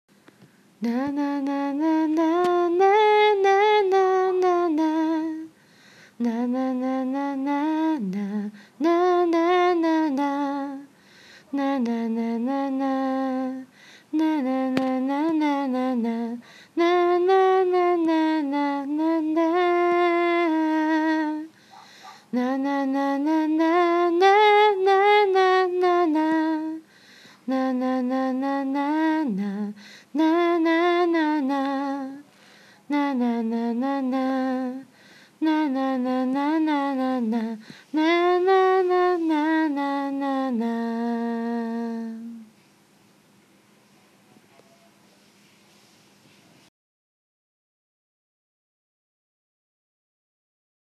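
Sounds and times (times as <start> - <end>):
woman singing wordless tune: 0.7 - 42.6.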